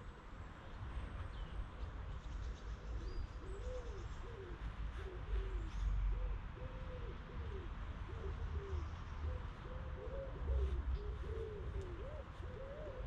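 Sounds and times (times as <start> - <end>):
pigeon cooing: 3.4 - 13.0.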